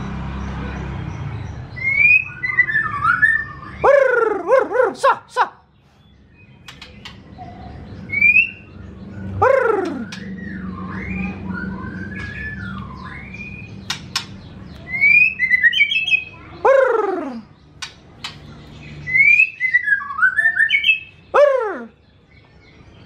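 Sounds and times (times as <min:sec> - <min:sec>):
bird singing: 0:00.0 - 0:23.0
sharp clicks: 0:13.8 - 0:14.4, 0:17.8 - 0:18.5.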